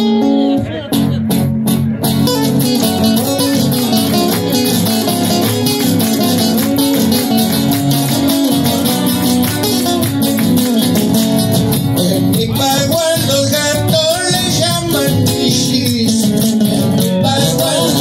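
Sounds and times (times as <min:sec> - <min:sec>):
acoustic guitars strumming: 0:00.0 - 0:18.0.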